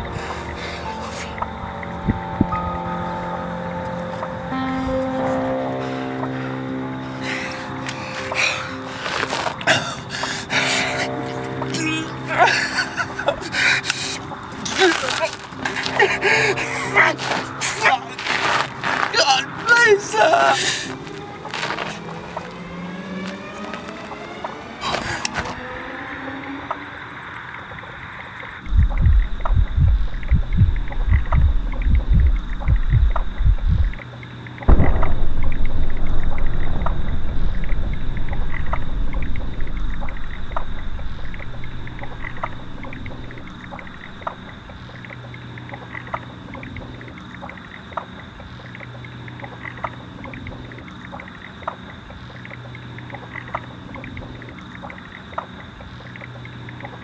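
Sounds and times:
faint ticks: 27.4s - 57.0s
low steady hum: 28.1s - 57.0s
low thumps: 28.6s - 34.0s, 34.6s - 45.2s
loud ringing bang: 34.7s - 44.8s.

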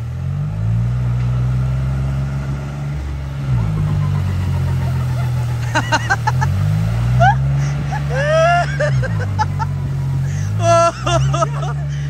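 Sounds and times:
tractor diesel engine under load: 0.0s - 12.0s
people shouting: 7.1s - 12.0s.

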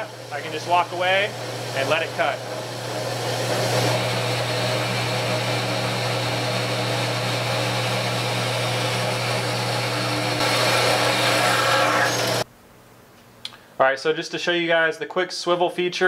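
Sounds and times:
bandsaw motor hum: 0.0s - 12.4s.

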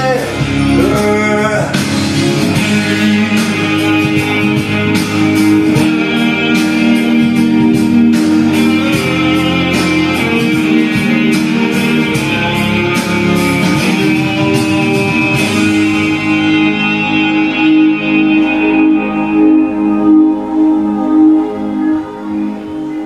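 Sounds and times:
instrumental pop backing track: 0.0s - 23.0s.

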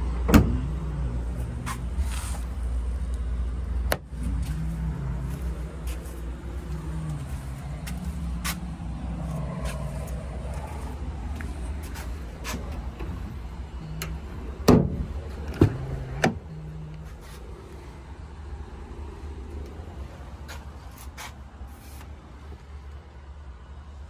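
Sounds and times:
low rumble: 0.0s - 20.4s
truck door clunks: 0.2s - 0.7s, 14.0s - 16.5s.

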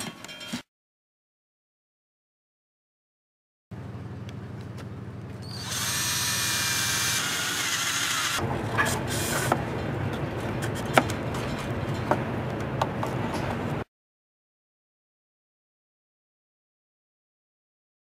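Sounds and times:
cordless drill boring into plywood: 5.4s - 8.4s.

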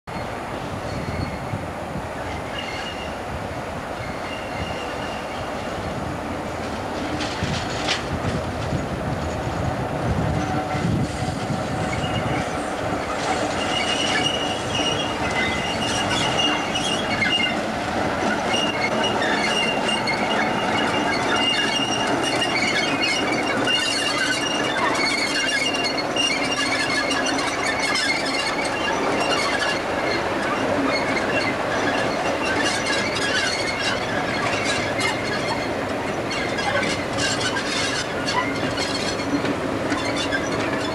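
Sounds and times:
rail noise from wheels: 0.1s - 40.9s
high-pitched wheel squeal: 10.4s - 17.6s, 18.2s - 40.9s.

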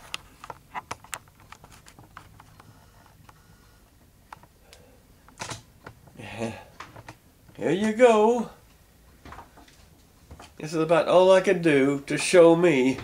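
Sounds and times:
book rustle: 0.0s - 2.6s.

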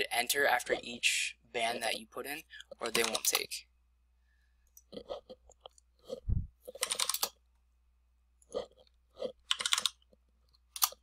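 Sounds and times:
typing on a keyboard: 6.7s - 7.3s, 9.5s - 10.0s.

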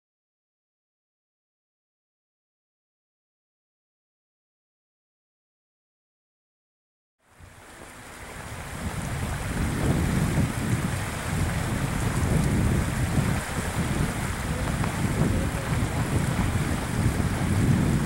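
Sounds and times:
fast-flowing river rushing: 7.2s - 18.0s
wind buffeting microphone: 7.3s - 18.0s.

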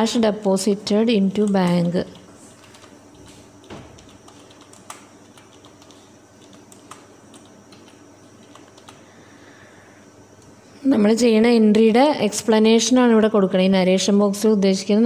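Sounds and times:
computer keyboard typing: 1.2s - 9.0s.

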